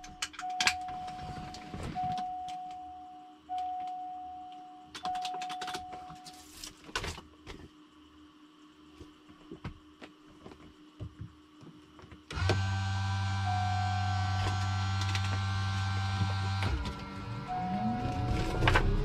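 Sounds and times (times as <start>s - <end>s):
electrical hum with whine: 0.0s - 19.0s
steady high tone: 16.4s - 19.0s.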